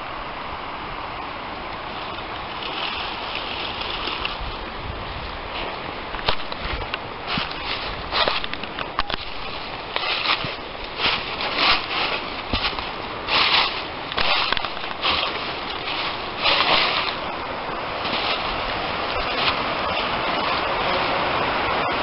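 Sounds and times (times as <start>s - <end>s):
steady hiss: 0.0s - 22.0s
footsteps crunching dry leaves: 6.4s - 20.3s.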